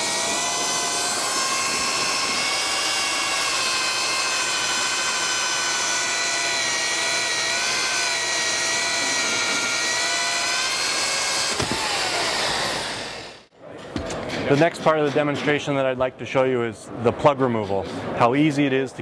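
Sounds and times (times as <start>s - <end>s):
cordless drill motor whine: 0.0s - 13.5s
hole saw cutting wood: 0.0s - 13.5s.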